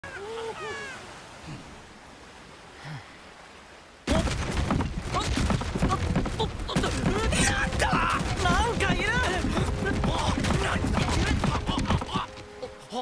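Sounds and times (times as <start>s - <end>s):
wooden barrels rattling: 4.1s - 12.6s
person speaking: 5.1s - 13.0s
people shouting: 7.1s - 12.3s.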